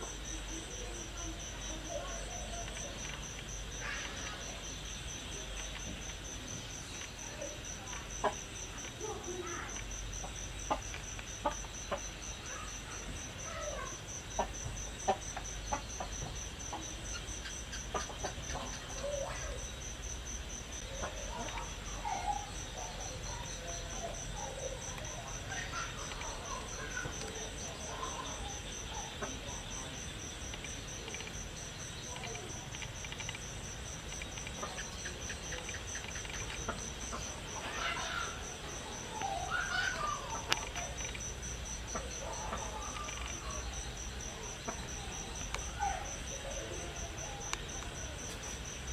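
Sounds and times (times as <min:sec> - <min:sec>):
chickens clucking: 0:00.0 - 0:19.9, 0:20.7 - 0:48.9
crickets trilling: 0:00.0 - 0:48.9
sharp clicks: 0:05.5 - 0:07.2, 0:30.0 - 0:37.6, 0:38.7 - 0:46.4.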